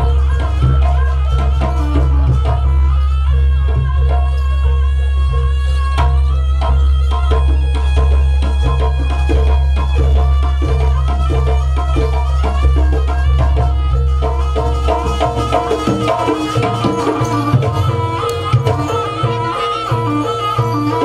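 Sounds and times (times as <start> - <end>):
drum strokes: 11.9 - 21.0
melodic line: 15.0 - 21.0.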